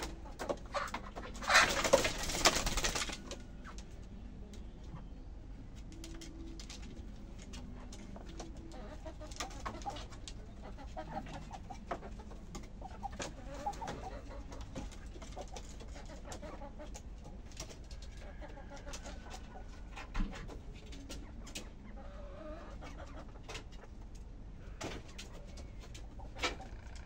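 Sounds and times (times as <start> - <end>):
chickens clucking: 0.0 - 27.0
wing flutters: 1.4 - 3.8.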